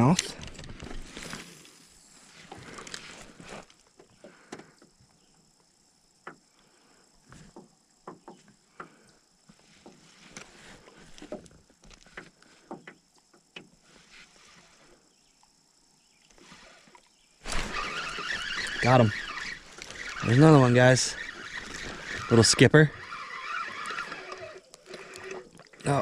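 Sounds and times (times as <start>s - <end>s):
fishing reel retrieving: 0.1s - 3.4s, 16.3s - 26.0s.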